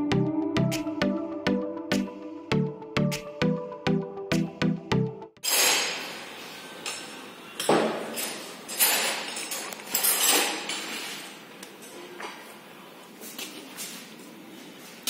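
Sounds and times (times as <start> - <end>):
metal tools clanking: 6.8 - 12.0.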